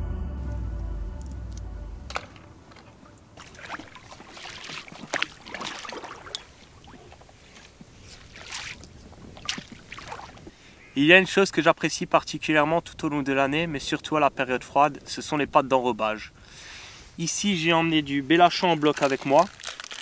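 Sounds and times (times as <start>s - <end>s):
waves slapping boat hull: 2.1s - 10.7s.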